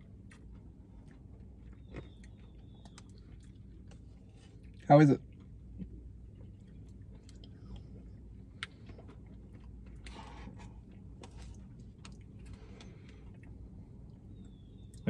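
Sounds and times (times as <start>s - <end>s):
chewing sounds: 0.0s - 15.0s
low steady hum: 0.0s - 15.0s.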